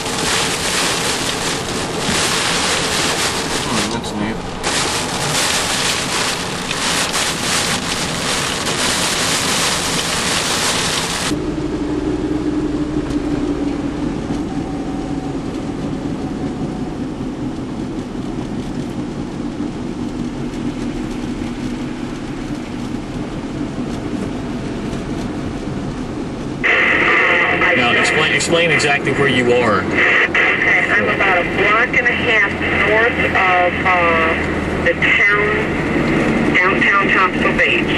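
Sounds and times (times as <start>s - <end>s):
heavy rain on a car: 0.0s - 11.4s, 13.0s - 37.9s
car engine and road noise: 0.0s - 37.9s
low hum: 9.7s - 28.4s.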